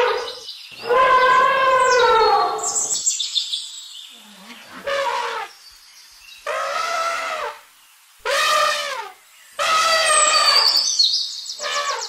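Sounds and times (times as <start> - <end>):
elephant shrill squeal: 0.0 - 3.0, 6.5 - 7.6, 8.2 - 11.0, 11.6 - 12.0
elephant trumpeting: 0.0 - 3.0, 4.7 - 5.5, 6.4 - 7.6, 8.2 - 10.8, 11.6 - 12.0.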